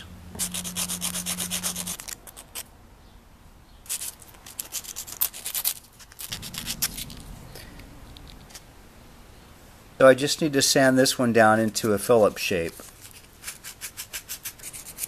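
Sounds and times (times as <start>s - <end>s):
low steady hum: 0.0s - 2.1s, 6.2s - 11.7s
screwdriver rubbed on sandpaper: 0.4s - 2.4s, 13.0s - 15.0s.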